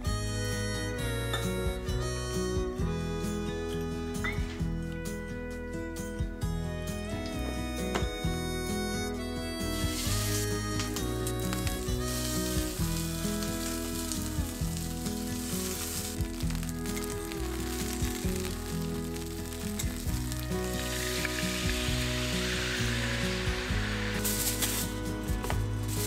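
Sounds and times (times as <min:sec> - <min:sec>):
aluminium foil crinkling: 0:09.9 - 0:21.7, 0:24.1 - 0:25.1
meat sizzling in a frying pan: 0:11.5 - 0:26.0.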